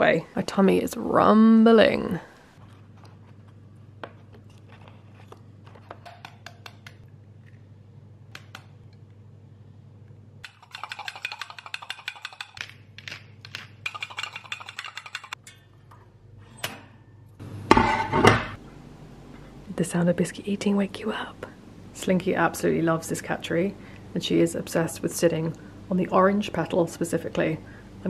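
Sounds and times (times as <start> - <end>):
low steady hum: 0.0 - 28.0
egg cracking: 10.4 - 15.4.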